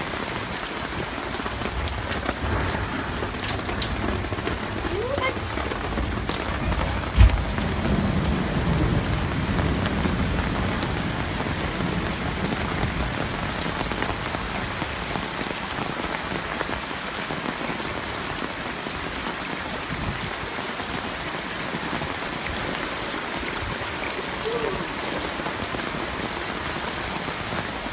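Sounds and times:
heavy rain pouring: 0.0s - 27.9s
low rumble: 1.8s - 13.0s
loud thump: 7.1s - 7.5s.

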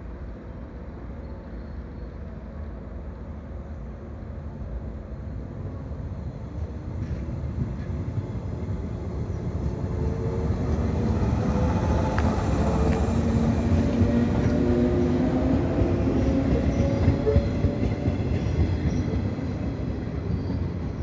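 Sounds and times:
train wheels rumbling: 6.4s - 21.0s.

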